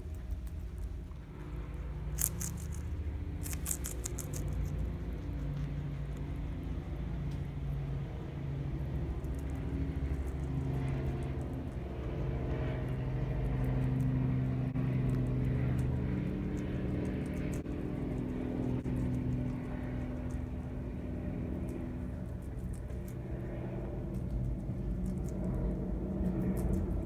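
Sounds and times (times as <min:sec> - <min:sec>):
guinea pigs chewing lettuce: 0:00.0 - 0:27.0
low engine hum: 0:00.0 - 0:27.0.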